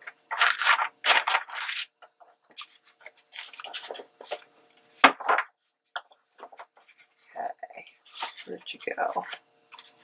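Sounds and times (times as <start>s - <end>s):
paper rustling and sliding: 0.3s - 1.9s, 2.6s - 5.4s, 8.1s - 10.0s.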